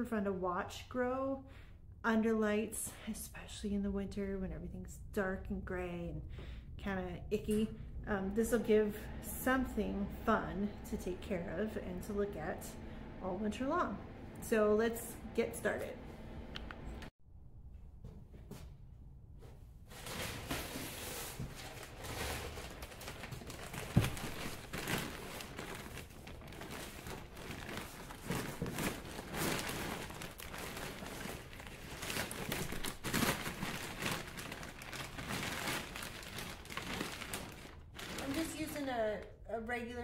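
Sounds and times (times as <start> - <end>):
plastic bag crinkling and rustling: 19.9 - 38.9.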